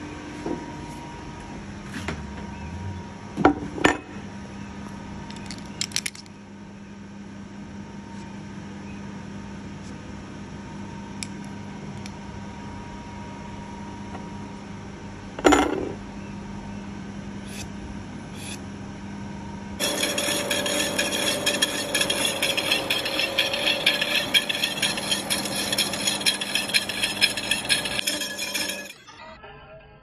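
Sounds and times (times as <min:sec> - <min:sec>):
machine hum: 0:00.0 - 0:29.1
saw cutting screech: 0:19.8 - 0:29.0.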